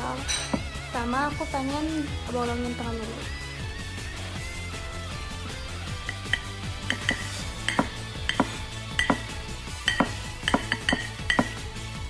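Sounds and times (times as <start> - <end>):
knife clinking on ceramic plate: 6.1 - 9.3, 9.9 - 11.6.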